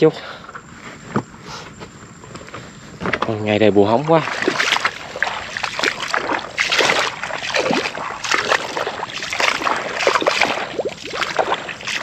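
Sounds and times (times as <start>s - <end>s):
shallow water splashing: 3.9s - 12.0s.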